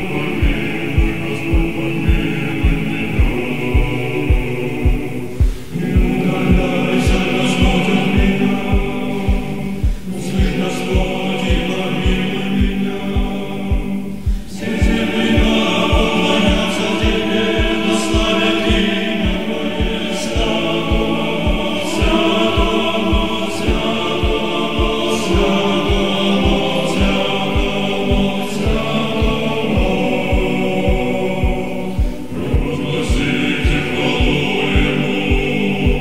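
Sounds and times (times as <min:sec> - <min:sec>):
choral voices: 0:00.0 - 0:36.0
steady low beat: 0:00.0 - 0:36.0.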